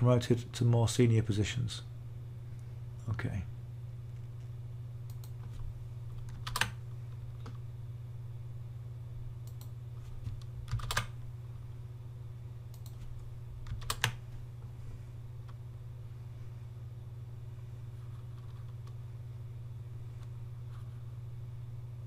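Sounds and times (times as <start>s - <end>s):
steady low hum: 0.0s - 22.0s
keyboard keystrokes: 6.2s - 6.8s, 9.5s - 11.1s, 12.8s - 14.2s.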